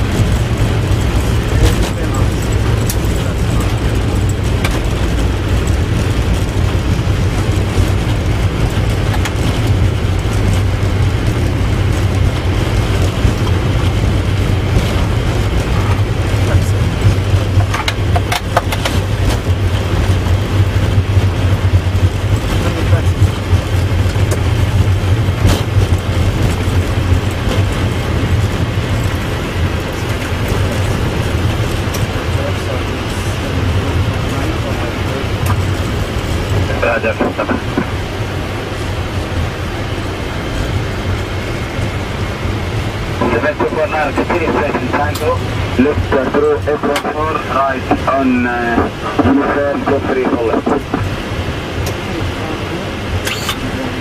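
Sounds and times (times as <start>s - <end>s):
airliner landing rumble and roar: 0.0s - 54.0s.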